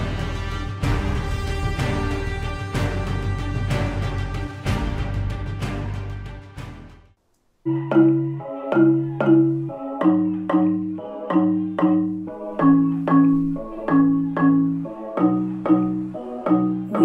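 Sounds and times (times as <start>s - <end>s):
melody of struck notes on loudspeakers: 7.7s - 17.0s.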